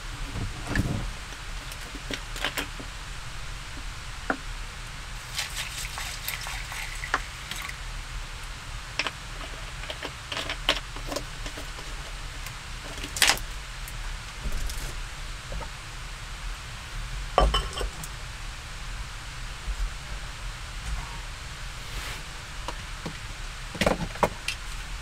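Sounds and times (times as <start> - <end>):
water pouring into a bowl: 5.2 - 7.9.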